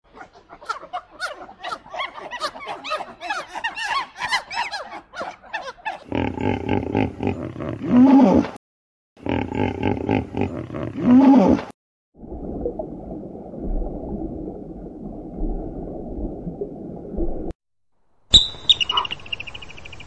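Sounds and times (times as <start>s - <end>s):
hippopotamus grunting and bellowing: 0.1s - 8.6s, 9.2s - 11.7s
macaques squealing and chattering: 0.2s - 6.1s, 18.4s - 19.6s.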